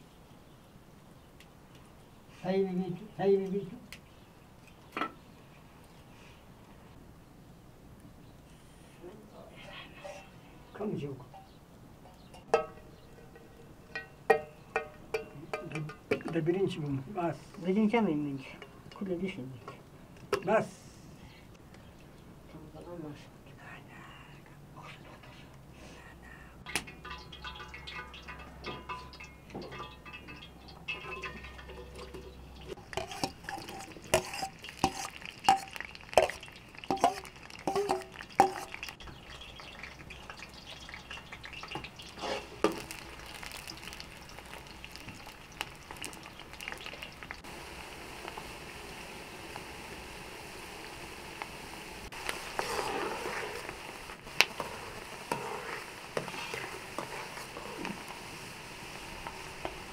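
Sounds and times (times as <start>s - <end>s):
metal bowl clinking on pot: 12.2s - 16.4s, 26.8s - 38.9s
onions sizzling in oil: 26.6s - 59.9s.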